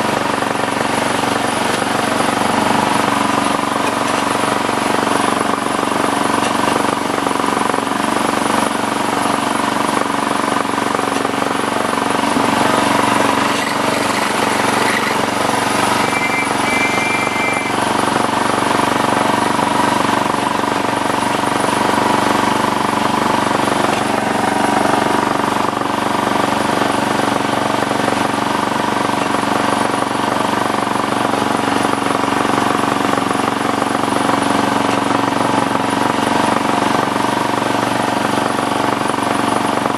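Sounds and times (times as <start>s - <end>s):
miniature train wheels droning: 10.3s - 18.9s
high two-note tone: 15.8s - 17.8s.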